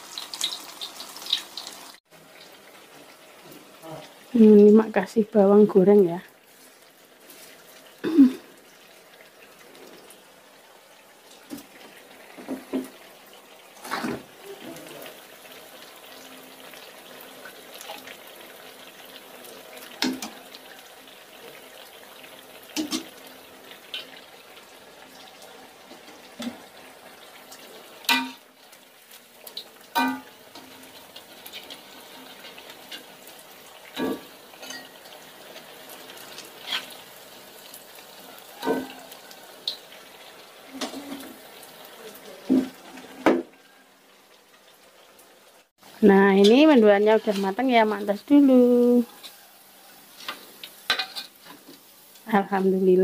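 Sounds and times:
food sizzling in hot oil: 0.0s - 53.0s
metal utensils clinking on pots: 22.7s - 23.2s, 28.0s - 28.4s, 29.9s - 30.8s, 33.9s - 35.1s, 50.2s - 51.6s.

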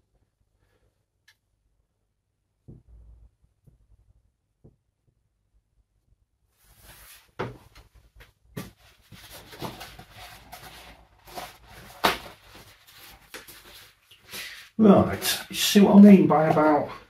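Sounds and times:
rustling: 6.6s - 14.7s.

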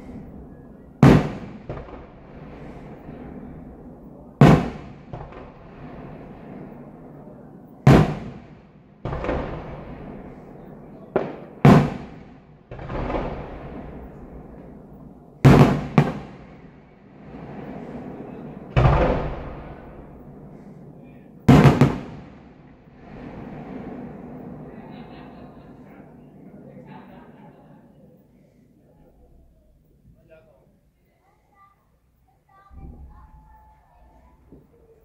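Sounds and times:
steady rumble: 0.0s - 27.2s
fireworks bursting with bangs: 0.0s - 30.4s, 32.4s - 35.0s.

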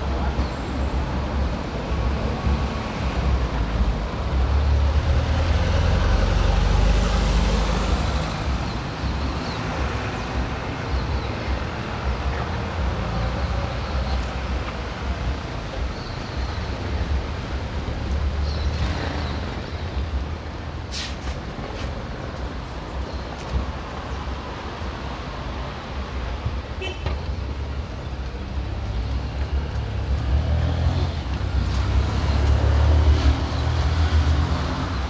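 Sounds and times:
low traffic rumble: 0.0s - 35.0s
cars driving past: 1.4s - 15.6s, 27.5s - 35.0s.

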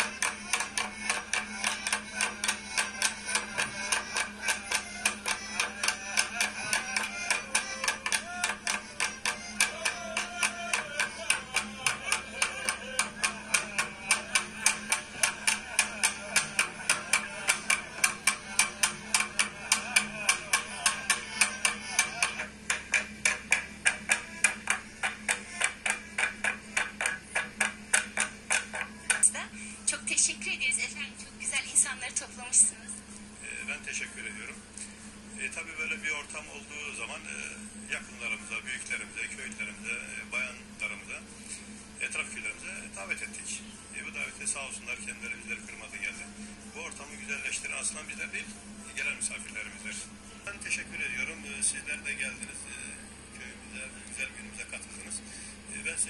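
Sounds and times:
fast folk dance music: 0.0s - 22.5s
sharp percussive beat: 0.0s - 29.3s.

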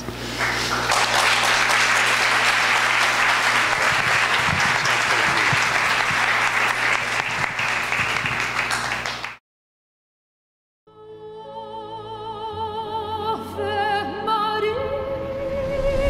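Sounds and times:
audience applauding: 0.3s - 9.4s.

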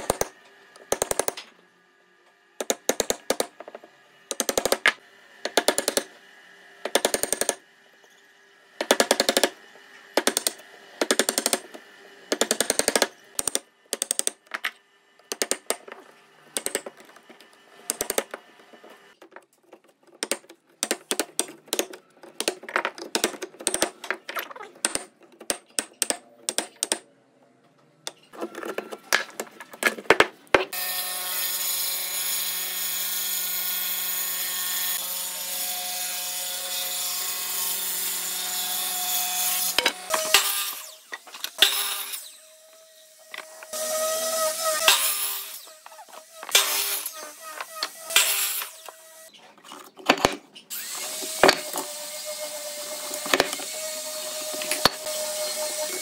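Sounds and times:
power chisel hammering wood: 2.6s - 3.6s, 4.3s - 6.1s, 6.8s - 7.6s, 8.8s - 11.7s, 12.3s - 14.5s, 17.9s - 18.4s, 20.2s - 24.0s.

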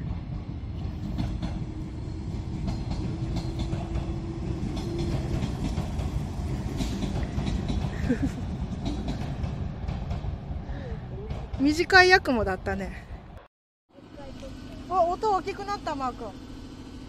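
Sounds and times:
train wheels clicking over joints: 0.0s - 12.6s
train rumble: 0.0s - 17.0s.

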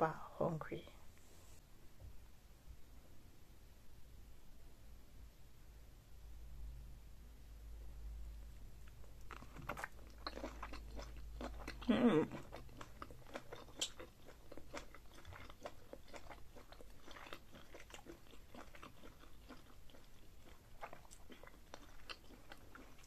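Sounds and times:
close chewing mouth smacks: 8.8s - 23.0s.

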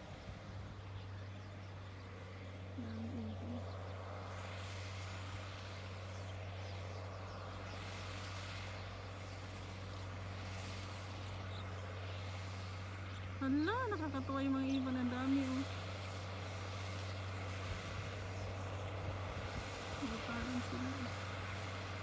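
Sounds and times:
distant tractor engine droning: 0.0s - 22.0s.

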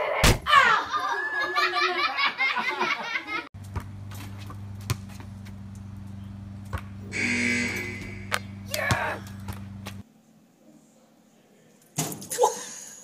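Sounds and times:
steady low hum: 3.6s - 10.0s
short noisy burst: 7.1s - 8.5s.

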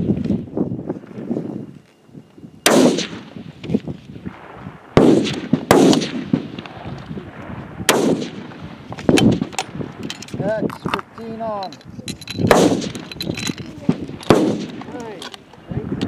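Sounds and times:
rifle shots with rolling echo: 2.6s - 3.6s, 4.2s - 10.1s, 12.4s - 15.2s.

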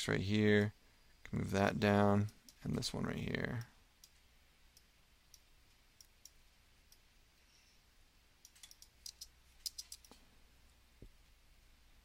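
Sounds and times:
computer mouse clicks: 3.6s - 7.0s, 8.4s - 10.2s.

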